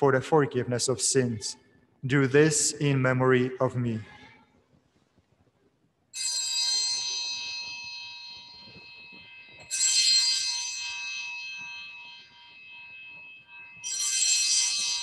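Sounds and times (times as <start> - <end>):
altar bells ringing: 6.1 - 15.0.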